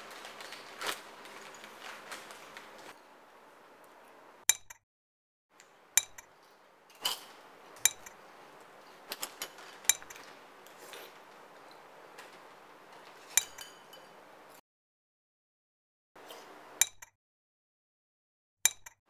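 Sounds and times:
spoon clinking against bowl: 5.9s - 6.3s, 6.9s - 8.2s, 13.3s - 14.2s.

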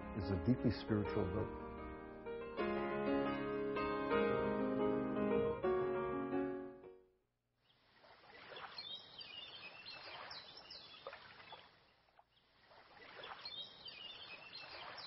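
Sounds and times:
soft water-like noise: 7.6s - 15.0s
birds high falling calls: 8.4s - 11.7s, 13.0s - 15.0s.

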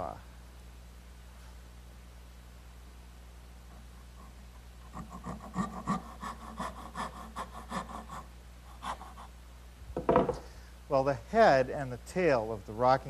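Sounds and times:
hand saw cutting wood: 4.9s - 9.3s.

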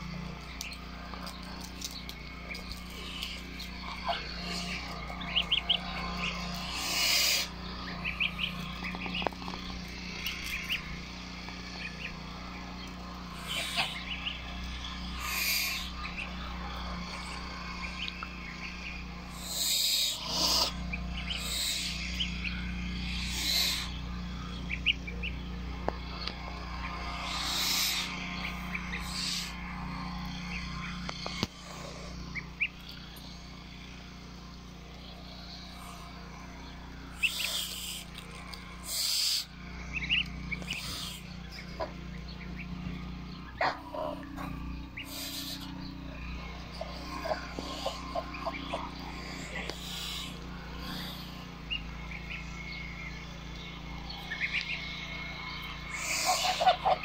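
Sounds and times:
birds pecking feed on paving: 0.0s - 57.0s
goslings peeping: 0.0s - 57.0s.

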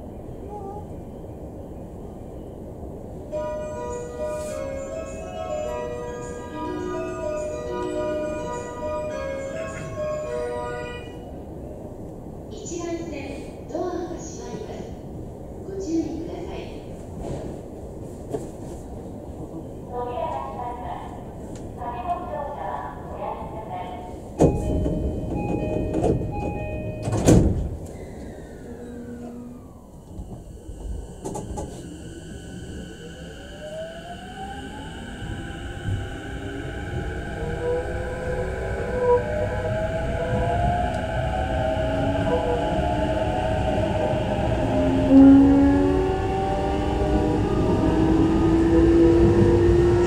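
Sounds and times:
train low hum: 0.0s - 50.0s
train door chime: 3.3s - 11.3s, 24.4s - 32.1s
train motor whine: 27.8s - 32.0s.

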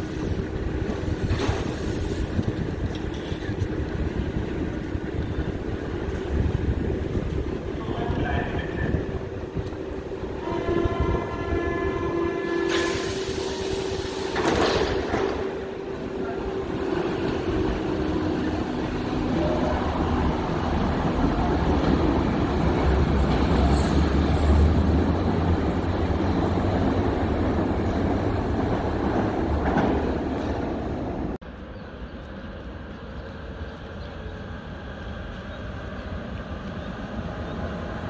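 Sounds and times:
loud hiss of doors and brakes: 0.0s - 2.4s, 12.6s - 15.5s
train motors and wheels rumbling: 0.0s - 38.0s.

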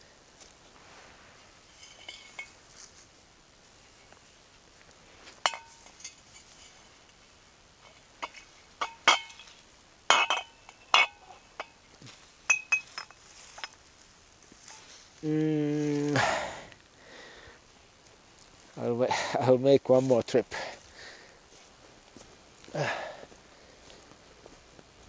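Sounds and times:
glass bottles clinking: 8.2s - 11.7s, 12.5s - 13.8s.

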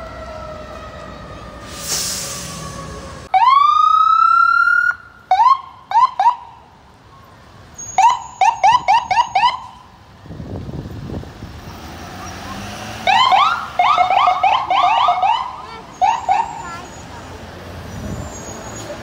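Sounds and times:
ambulance siren wailing and chirping: 2.6s - 6.6s, 7.8s - 9.9s, 13.1s - 16.8s.

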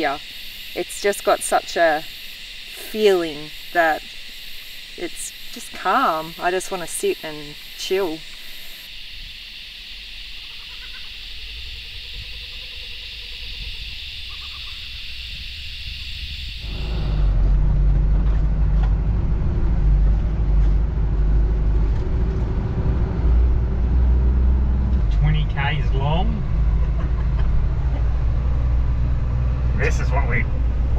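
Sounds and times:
high insect drone: 0.0s - 18.1s
diesel truck engine droning: 16.6s - 30.9s.

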